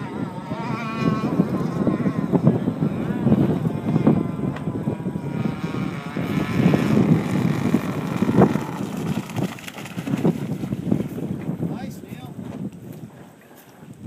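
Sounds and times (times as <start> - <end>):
model boat motor whine: 0.0 - 9.6
wind rumble on microphone: 0.0 - 14.0.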